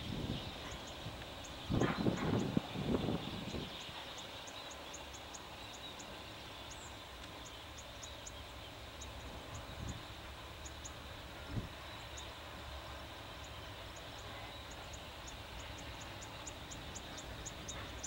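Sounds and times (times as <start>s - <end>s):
background hiss: 0.0s - 18.0s
faint high ticks: 6.8s - 8.4s.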